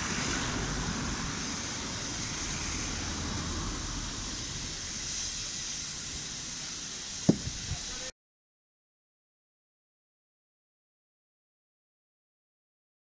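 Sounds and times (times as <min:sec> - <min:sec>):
wind rumbling on microphone: 0:00.0 - 0:08.0
steam locomotives hissing: 0:00.0 - 0:08.1.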